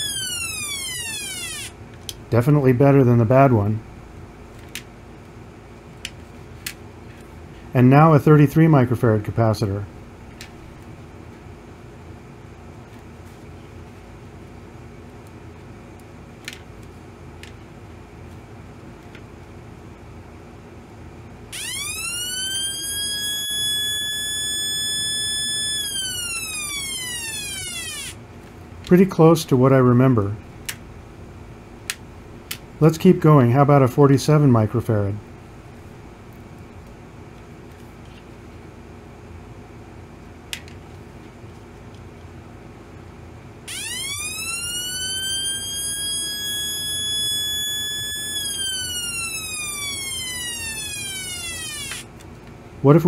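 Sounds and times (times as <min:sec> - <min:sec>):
siren tone from small loudspeaker: 0:00.0 - 0:01.7, 0:21.5 - 0:28.2, 0:43.7 - 0:52.1.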